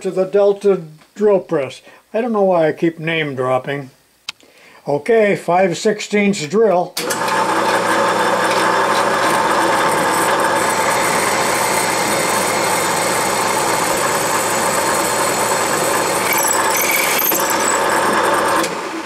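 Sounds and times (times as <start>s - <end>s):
drill press drilling cast iron: 7.0s - 19.0s
high squeaks: 16.2s - 18.2s.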